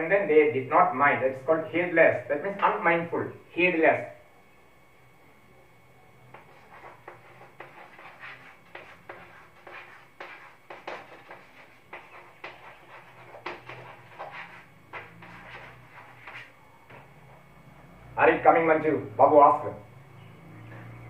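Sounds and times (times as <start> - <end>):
chalk scratching on blackboard: 6.3 - 16.6.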